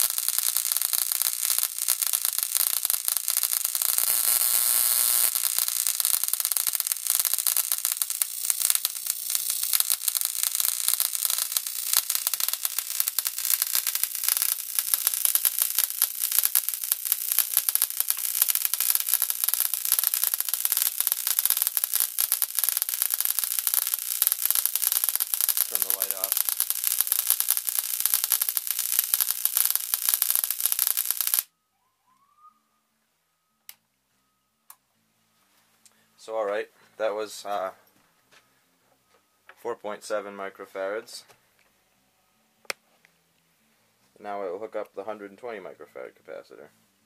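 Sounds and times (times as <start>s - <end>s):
electric arc crackling and hissing: 0.0s - 31.5s.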